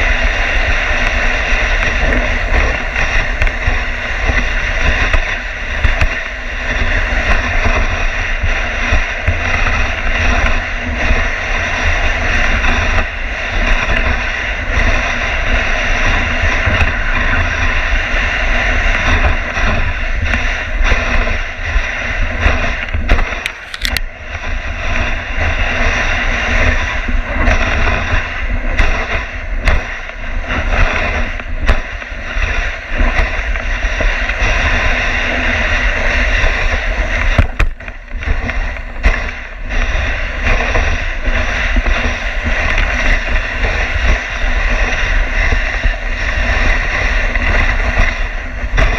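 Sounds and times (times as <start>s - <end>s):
sled runners scraping over snow: 0.0s - 48.9s
wind rumbling on microphone: 0.0s - 48.9s
sled knocking on bumps: 24.9s - 48.9s.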